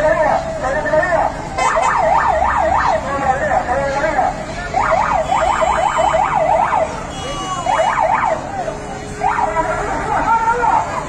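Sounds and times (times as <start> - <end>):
traffic noise: 0.0 - 11.0
police siren yelping: 1.6 - 3.1, 4.8 - 11.0.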